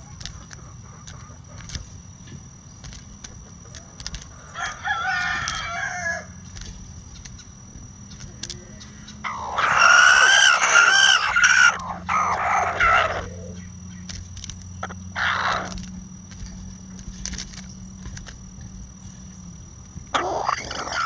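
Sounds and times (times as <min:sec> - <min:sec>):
chicken calls: 0:00.0 - 0:02.0, 0:03.2 - 0:07.5, 0:08.8 - 0:16.6, 0:20.0 - 0:21.0
rooster crowing: 0:04.3 - 0:06.4, 0:09.2 - 0:13.6.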